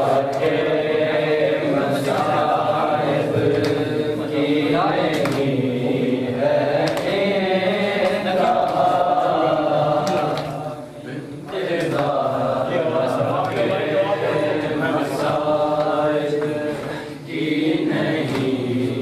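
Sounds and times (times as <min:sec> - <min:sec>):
men chanting a lament: 0:00.0 - 0:19.0
sharp slaps: 0:02.0 - 0:02.6, 0:03.3 - 0:04.0, 0:05.0 - 0:05.7, 0:06.7 - 0:07.3, 0:08.0 - 0:08.9, 0:09.9 - 0:10.7, 0:11.9 - 0:12.2, 0:18.2 - 0:18.6.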